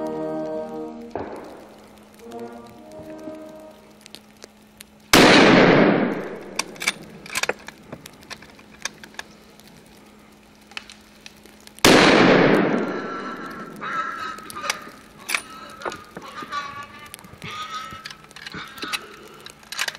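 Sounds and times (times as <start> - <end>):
rifle shots echoing: 1.2 - 1.9, 5.1 - 7.6, 11.8 - 15.5.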